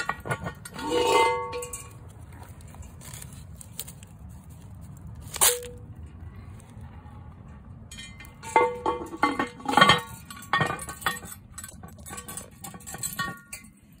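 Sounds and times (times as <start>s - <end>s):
metal lid clanking: 0.0s - 2.0s, 7.9s - 13.7s.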